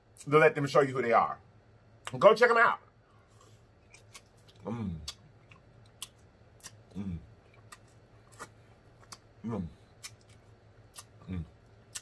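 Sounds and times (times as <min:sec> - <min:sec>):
wet lip smacks while eating: 0:10.0 - 0:11.2.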